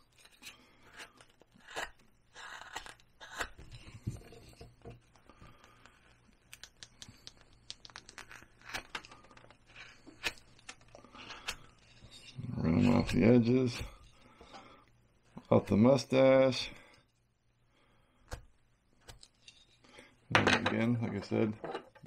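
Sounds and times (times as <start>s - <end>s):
carving tool cutting wood: 0.9s - 3.6s.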